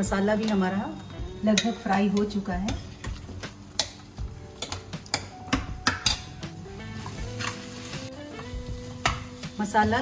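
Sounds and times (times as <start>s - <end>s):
background music: 0.0s - 10.0s
metal spatula scraping steel pan: 7.0s - 7.9s.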